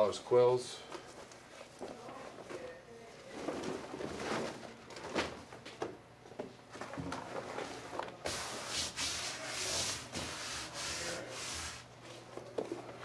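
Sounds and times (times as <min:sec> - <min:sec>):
hands rubbing leather hide: 0:08.3 - 0:11.8.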